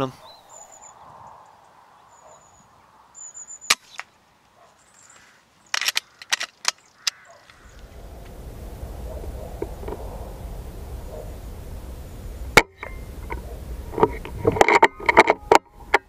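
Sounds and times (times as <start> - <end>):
thin high bird call: 0.0 - 8.2
sharp clicks: 5.7 - 8.3.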